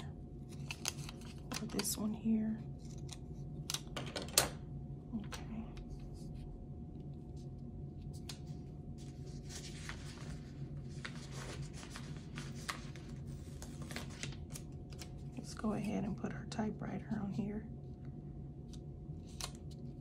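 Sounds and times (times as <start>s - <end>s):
steady low hum: 0.0s - 20.0s
paper rubbing and rustling: 0.4s - 1.8s, 7.2s - 15.4s.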